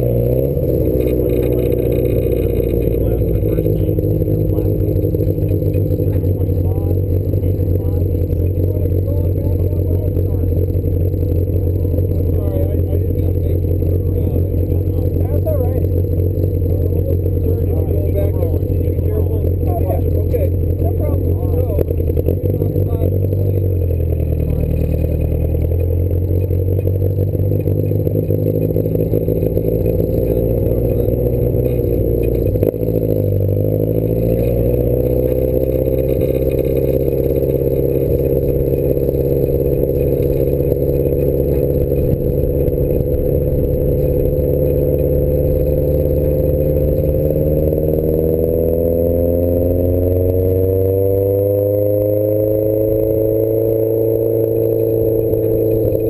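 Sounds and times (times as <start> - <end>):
sports car engine accelerating: 0.0 - 56.0.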